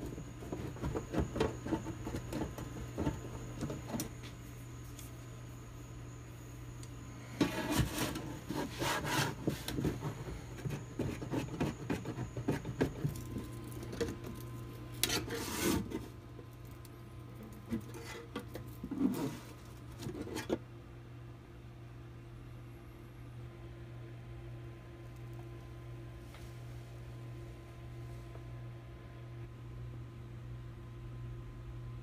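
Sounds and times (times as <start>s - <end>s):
pliers scraping and clicking on metal: 14.9s - 15.4s.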